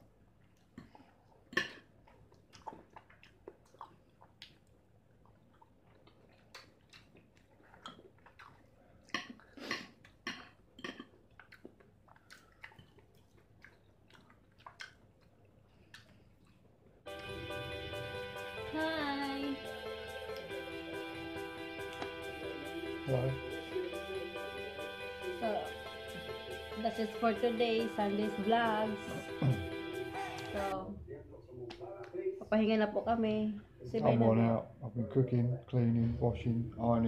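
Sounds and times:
chewing: 0.3 - 17.3
music: 17.1 - 30.8.

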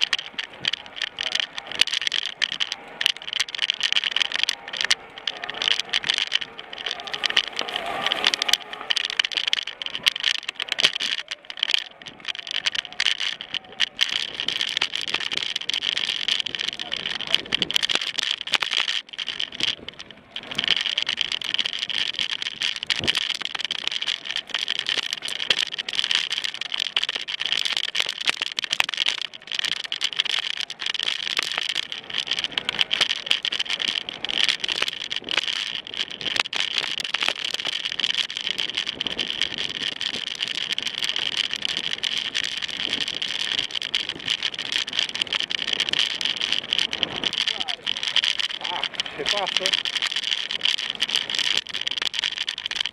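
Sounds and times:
bike rattling over bumps: 0.0 - 52.9.

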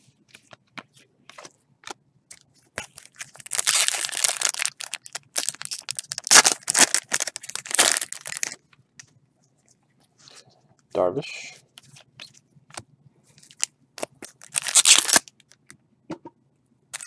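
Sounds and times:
foil wrapper tearing and crinkling: 2.8 - 8.6, 13.5 - 15.4.

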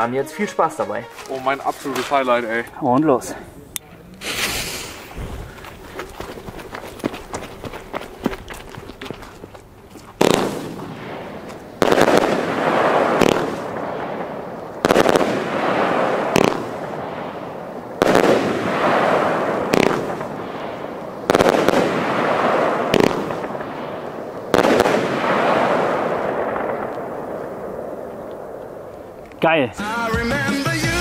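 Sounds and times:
rushing noise after bangs: 4.2 - 5.6
fireworks bangs: 4.2 - 30.4.

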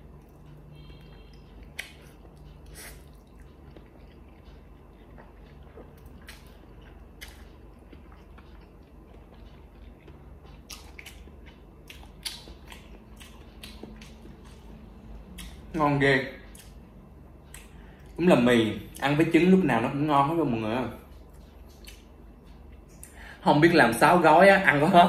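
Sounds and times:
mouth smacks and chewing: 1.3 - 14.7, 21.2 - 23.2.

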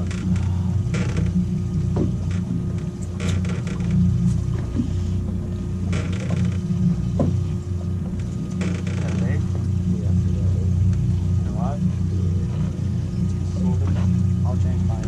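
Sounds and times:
light clicks and knocks: 0.0 - 9.8
outboard motor idling: 0.0 - 15.0.

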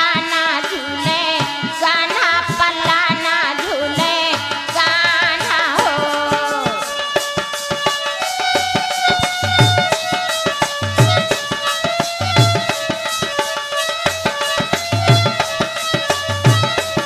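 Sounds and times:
hand drum rhythm: 0.0 - 17.0
person singing with vibrato: 0.0 - 17.0.

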